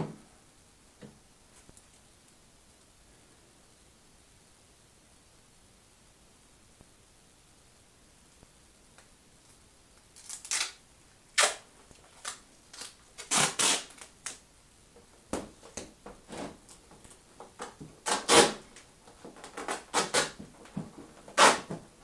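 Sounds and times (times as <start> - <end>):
tape scraping and crinkling: 10.1 - 10.8, 11.4 - 14.4, 15.6 - 21.9.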